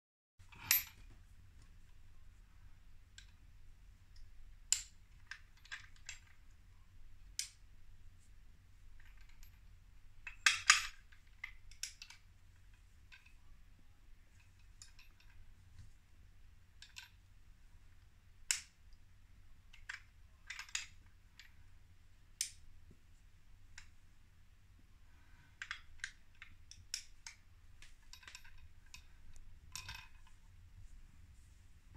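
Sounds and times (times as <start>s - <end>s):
metallic clicks and clinks: 0.5s - 1.2s, 10.3s - 12.2s, 14.4s - 15.4s, 25.6s - 30.4s.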